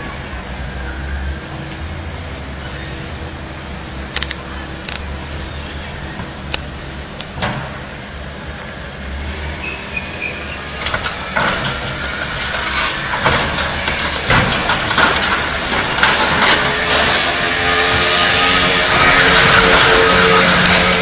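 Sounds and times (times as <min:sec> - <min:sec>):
excavator diesel engine running: 0:00.0 - 0:21.0
debris clattering and scraping: 0:10.6 - 0:21.0
scattered knocks: 0:10.8 - 0:17.7.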